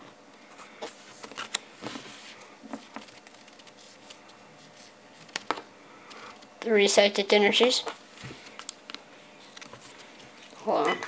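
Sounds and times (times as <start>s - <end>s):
trading cards clicking and rustling: 2.7s - 4.4s, 5.1s - 6.5s, 7.6s - 10.9s.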